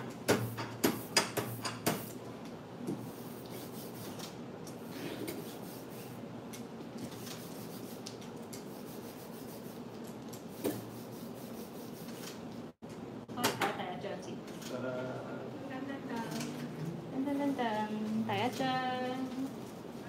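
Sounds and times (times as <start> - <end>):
ink rubbing and scraping on screen: 7.1 - 12.3.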